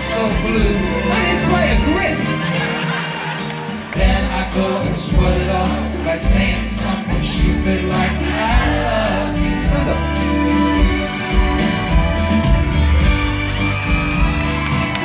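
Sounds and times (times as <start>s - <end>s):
person singing: 0.0s - 11.8s
live band with guitar and bass: 0.0s - 15.0s.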